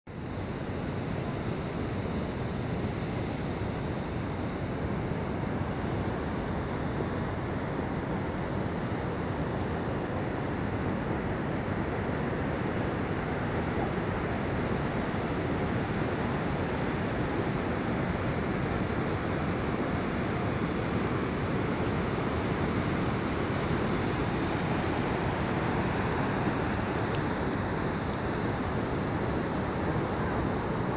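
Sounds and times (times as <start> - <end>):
rushing waterfall roar: 9.8 - 30.9.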